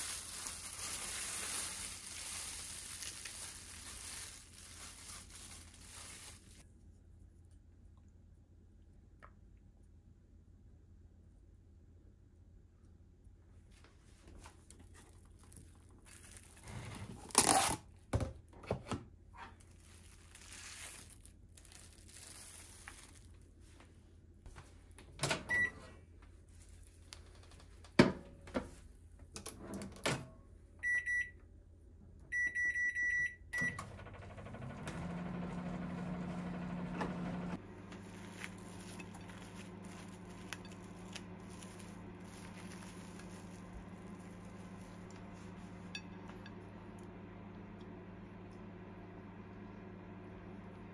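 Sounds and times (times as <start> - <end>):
microwave oven humming: 24.6 - 26.5, 27.4 - 50.9
keypad beeps: 32.3 - 33.8.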